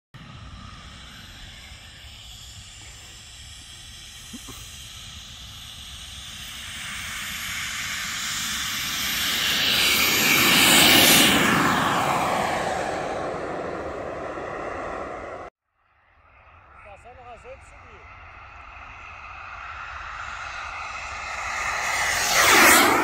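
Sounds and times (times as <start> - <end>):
model jet turbine hiss and whine: 0.2 - 15.5.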